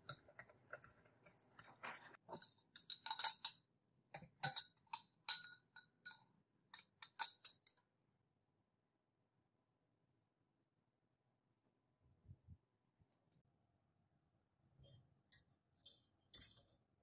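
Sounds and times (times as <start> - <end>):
metal spatula clinking on glass jar: 0.0 - 3.6, 4.2 - 7.8.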